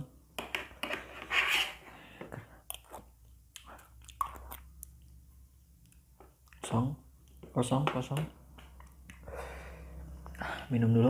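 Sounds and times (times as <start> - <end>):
metal spoon scraping plastic plate: 0.4 - 1.8
chewing: 2.6 - 5.2.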